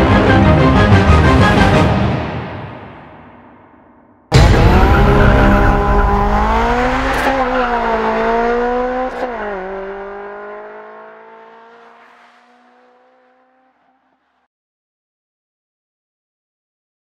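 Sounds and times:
car engine accelerating hard: 0:04.3 - 0:14.5.

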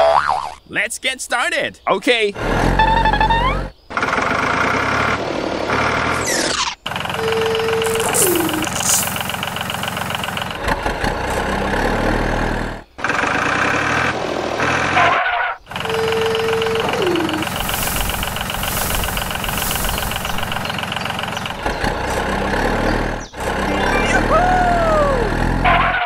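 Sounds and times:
truck engine running: 0:06.8 - 0:15.0, 0:15.6 - 0:26.0
tone with falling glide: 0:07.8 - 0:09.3, 0:16.8 - 0:20.7.

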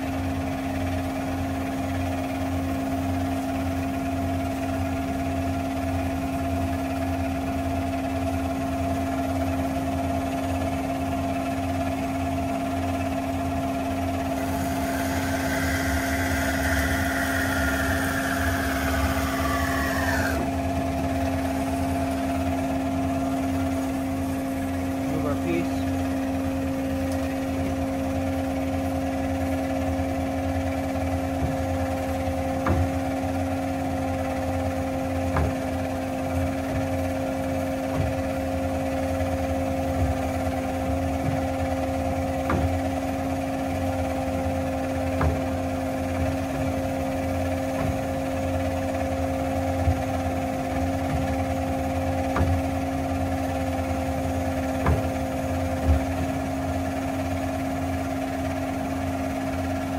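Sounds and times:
bandsaw humming: 0:14.1 - 0:26.1.

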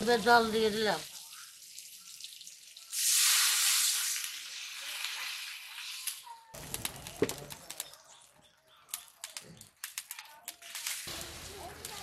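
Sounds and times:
water sizzling in hot oil: 0:00.0 - 0:08.3, 0:08.9 - 0:12.0
sharp clicks and crackles: 0:06.0 - 0:12.0.

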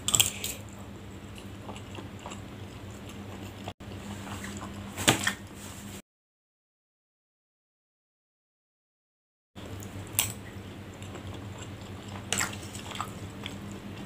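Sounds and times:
person chewing: 0:00.0 - 0:04.9, 0:10.2 - 0:14.0.

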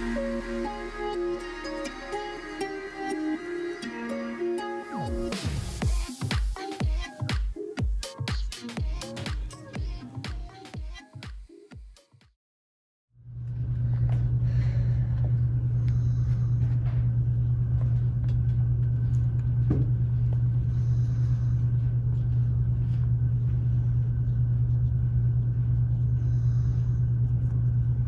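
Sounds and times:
steady low hum: 0:00.0 - 0:06.2, 0:13.2 - 0:28.0.

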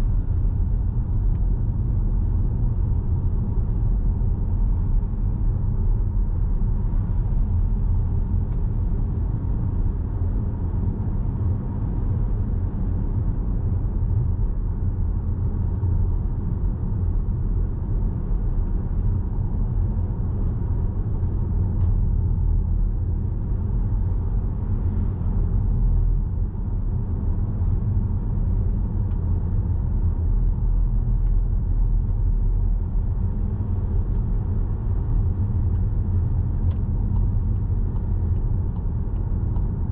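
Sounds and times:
car interior road rumble: 0:00.0 - 0:39.9.

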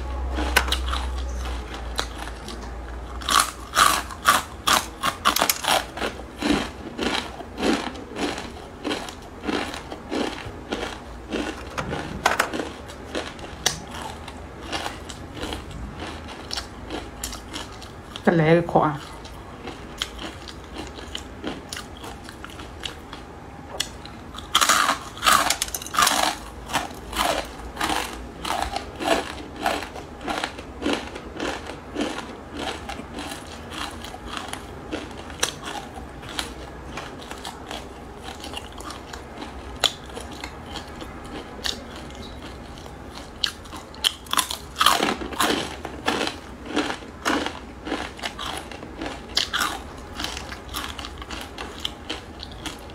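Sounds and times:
rhythmic chewing: 0:00.0 - 0:52.9
crunching crispy noodles: 0:03.2 - 0:18.2, 0:19.0 - 0:52.9.

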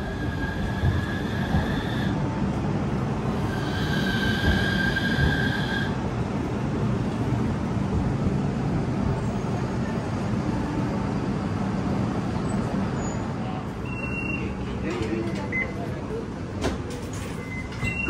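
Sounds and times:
tram squealing: 0:00.0 - 0:02.2, 0:03.2 - 0:06.0, 0:12.4 - 0:15.8, 0:17.0 - 0:18.0
tram low rumble: 0:00.0 - 0:18.0.

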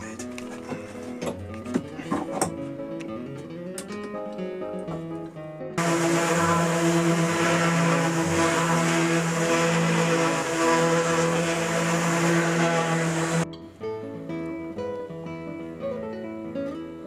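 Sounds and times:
orbital sander on plywood: 0:05.8 - 0:13.4.

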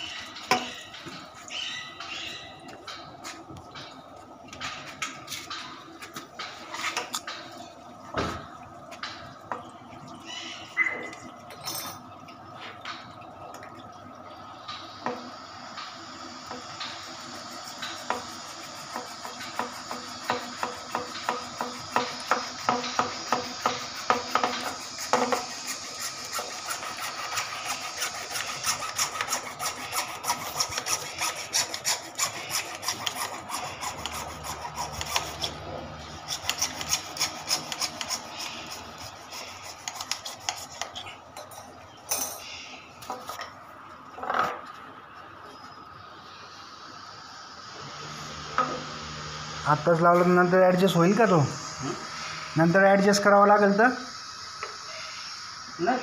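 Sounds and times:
hacksaw sawing plastic pipe: 0:16.5 - 0:41.0.

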